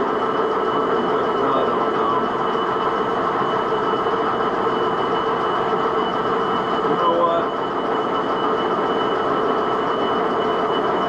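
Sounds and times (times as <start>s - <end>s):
high-pitched whine: 0.0s - 11.0s.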